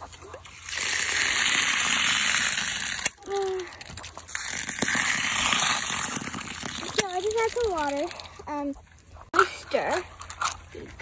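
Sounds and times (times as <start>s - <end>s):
hose water splashing on grain: 0.0s - 3.1s.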